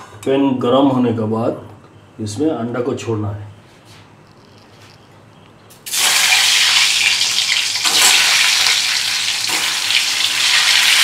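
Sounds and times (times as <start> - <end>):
eggs sizzling in hot oil: 5.8 - 11.0.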